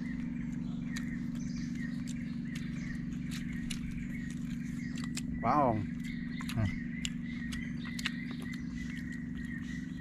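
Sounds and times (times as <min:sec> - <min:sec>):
bird chirping: 0:00.0 - 0:10.0
steady low hum: 0:00.0 - 0:10.0.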